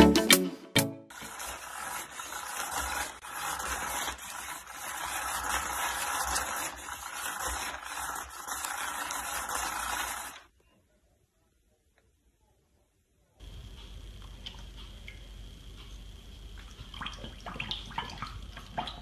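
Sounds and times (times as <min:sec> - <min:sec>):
electric cat toy whirring: 0:01.1 - 0:10.5.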